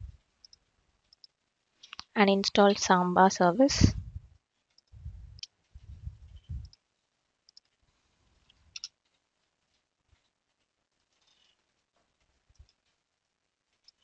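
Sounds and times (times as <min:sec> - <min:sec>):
dull low thuds: 0:03.9 - 0:04.3, 0:05.0 - 0:06.7.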